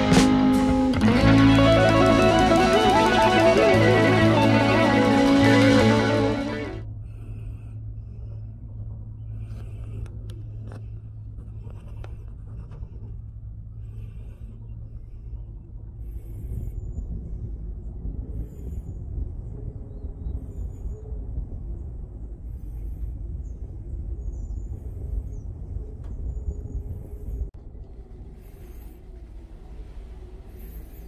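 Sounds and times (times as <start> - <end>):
cable car rumble and hum: 0.0 - 31.0.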